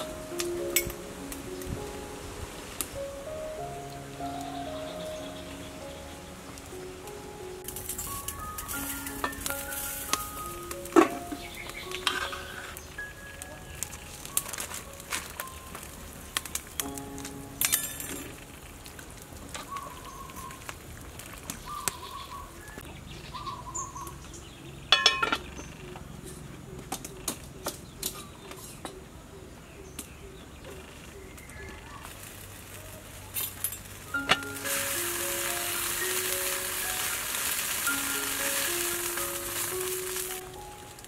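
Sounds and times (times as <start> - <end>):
wood fire crackling: 0.0 - 22.9, 32.0 - 41.0
birds calling: 3.0 - 18.9, 21.5 - 32.4, 34.1 - 40.9
ladle clinking against steel pot: 24.9 - 25.5.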